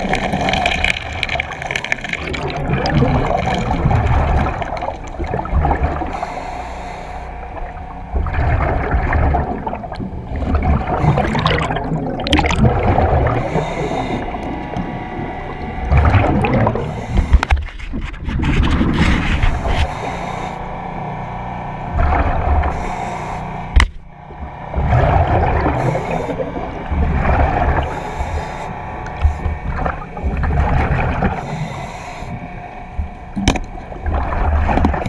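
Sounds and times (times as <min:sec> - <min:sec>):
exhaust bubbles gurgling: 0:00.0 - 0:06.4, 0:07.4 - 0:21.2, 0:21.8 - 0:35.0
diver breathing underwater: 0:05.9 - 0:07.9, 0:10.3 - 0:17.9, 0:18.9 - 0:21.2, 0:22.0 - 0:23.7, 0:24.7 - 0:33.4.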